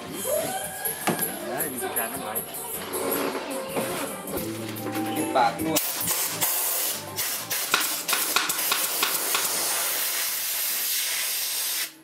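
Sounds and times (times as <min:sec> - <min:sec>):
loud steady hiss: 0:05.8 - 0:12.0.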